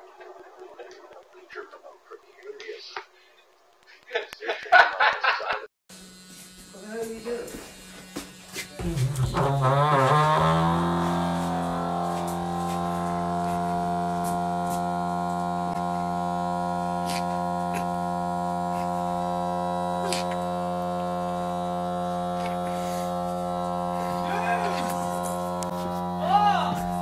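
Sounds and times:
electric toothbrush buzzing on door: 5.9s - 27.0s.

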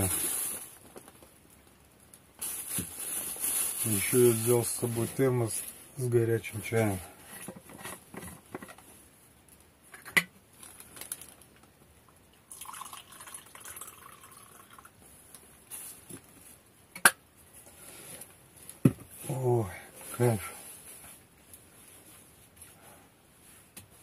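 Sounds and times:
tea pouring into a cup: 12.5s - 15.0s.

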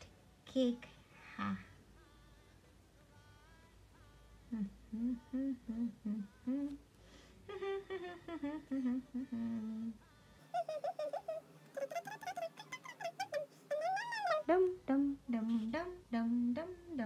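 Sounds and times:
woman humming: 4.5s - 6.8s, 7.5s - 17.0s.

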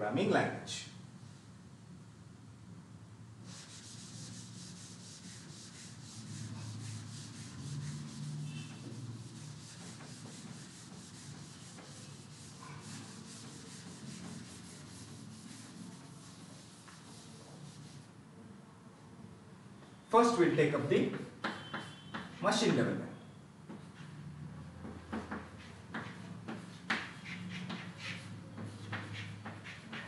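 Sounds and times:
duster rubbing a chalkboard: 3.4s - 18.1s, 21.0s - 22.5s, 24.8s - 30.0s.

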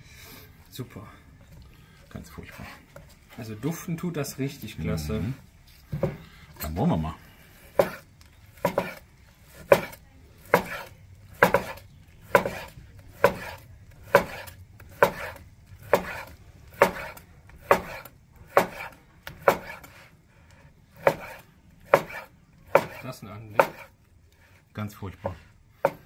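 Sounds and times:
knife slicing steak: 7.7s - 20.1s, 21.0s - 24.0s.

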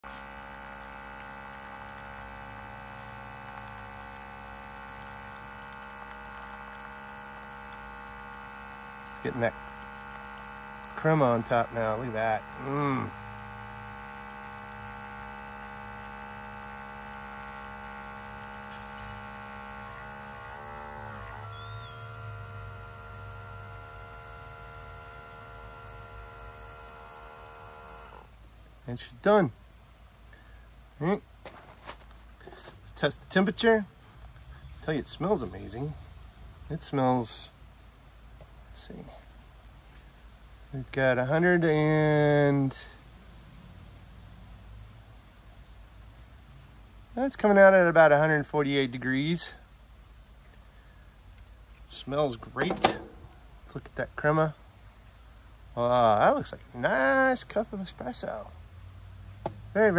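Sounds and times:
espresso machine pump humming: 0.0s - 28.3s.

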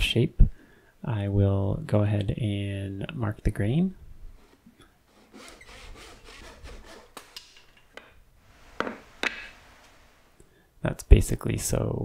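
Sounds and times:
hand saw cutting wood: 5.1s - 7.4s.

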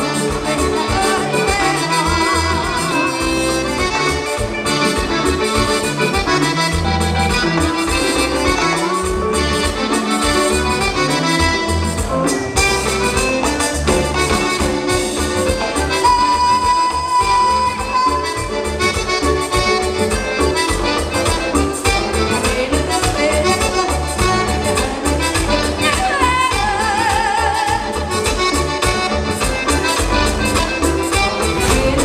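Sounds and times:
live band with accordion: 0.0s - 32.0s
pulsing bass line: 27.9s - 32.0s
steady dance beat: 31.2s - 32.0s.

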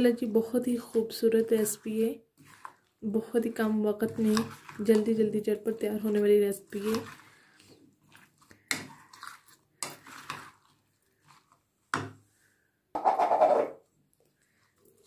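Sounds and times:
metal spoon scraping bowl: 1.1s - 11.5s, 13.0s - 13.9s.

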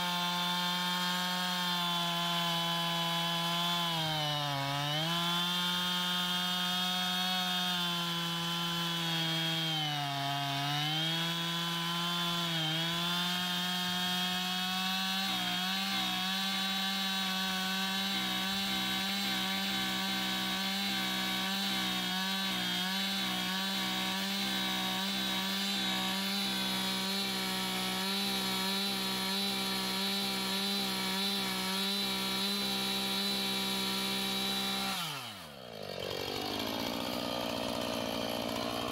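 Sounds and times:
chainsaw cutting through log: 0.0s - 38.9s.

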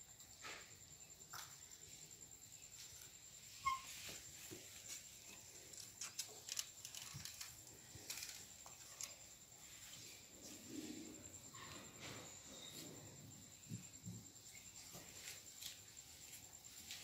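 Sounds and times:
short high squeak: 3.6s - 4.0s
faint steady high tone: 8.1s - 15.5s.

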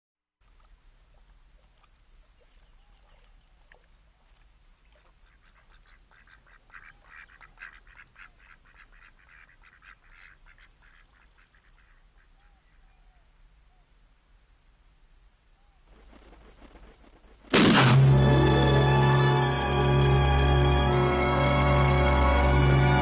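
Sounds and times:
ducks quacking: 4.8s - 12.9s.

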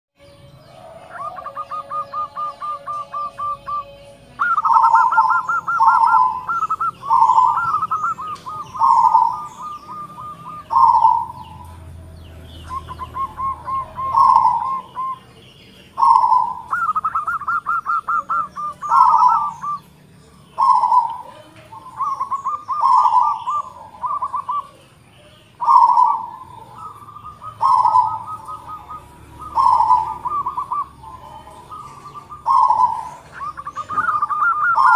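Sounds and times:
dove cooing: 0.2s - 34.9s.

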